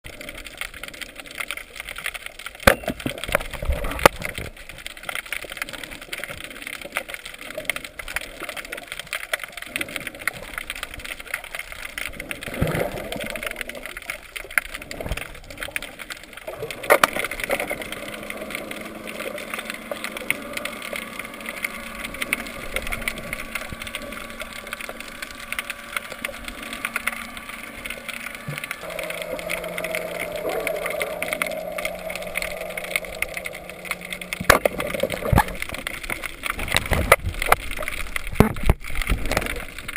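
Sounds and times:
underwater crackling hiss: 0:00.1 - 0:39.9
motorboat engine drone: 0:16.1 - 0:39.1.

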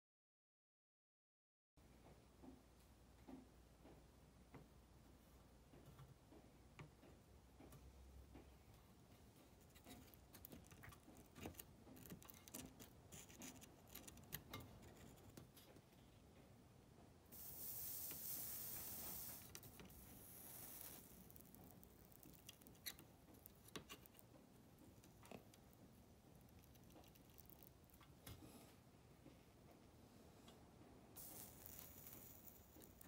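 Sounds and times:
flux sizzling on soldering iron: 0:17.3 - 0:24.2, 0:31.2 - 0:33.0.

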